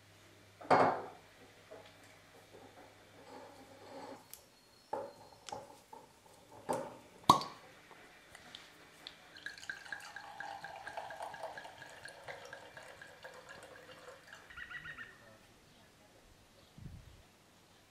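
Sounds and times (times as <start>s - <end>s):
cork popping: 7.3s - 7.6s
wine glugging into a glass: 9.4s - 14.9s.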